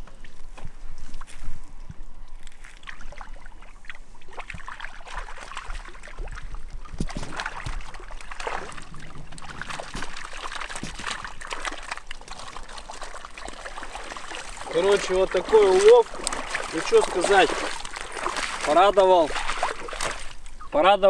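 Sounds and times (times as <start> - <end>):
water splashing and trickling: 0.0 - 21.0.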